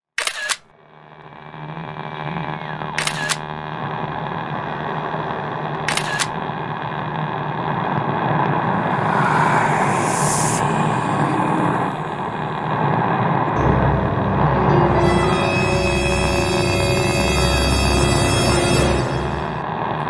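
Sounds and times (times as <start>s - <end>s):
sharp double clicks: 0.2s - 0.7s, 3.0s - 3.4s, 5.9s - 6.4s
low dense drone: 7.7s - 20.0s
burst of hiss: 8.6s - 12.7s.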